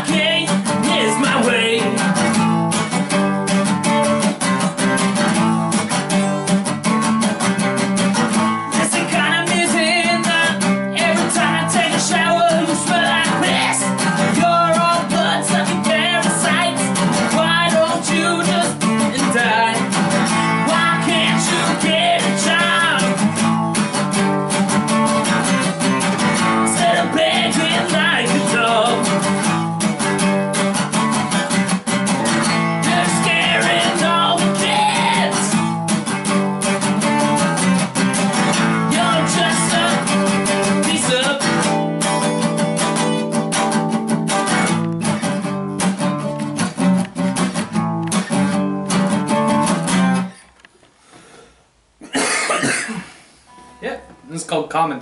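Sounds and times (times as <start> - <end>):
person singing: 0.0 - 2.2, 8.7 - 23.4, 26.4 - 29.5, 32.1 - 35.8, 38.5 - 41.9
acoustic guitar strummed fast: 0.0 - 50.4.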